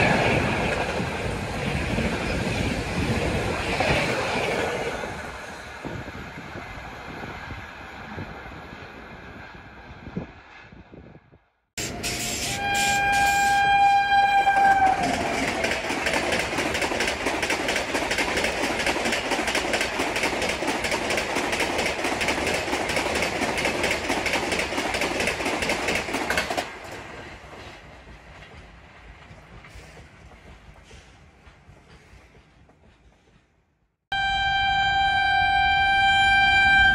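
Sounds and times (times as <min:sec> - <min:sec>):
train rumble: 0:00.0 - 0:36.9
locomotive horn blast: 0:11.8 - 0:15.3, 0:34.1 - 0:36.9
train wheels clattering on rails: 0:11.8 - 0:33.6.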